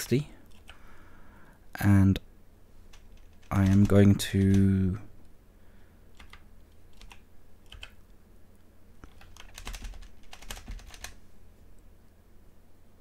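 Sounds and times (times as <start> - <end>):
computer keyboard typing: 0.5 - 0.8, 2.9 - 4.7, 6.2 - 8.0, 9.0 - 11.2.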